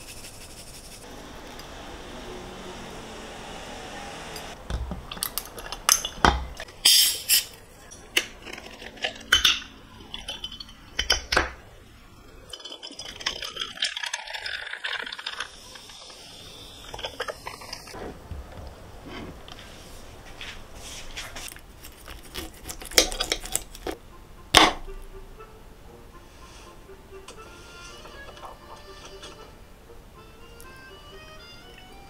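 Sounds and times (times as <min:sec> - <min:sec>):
dishes and utensils clinking: 0:07.8 - 0:11.6, 0:27.3 - 0:29.6
handling and scraping dishes: 0:07.8 - 0:11.7, 0:12.4 - 0:15.5, 0:27.8 - 0:29.5.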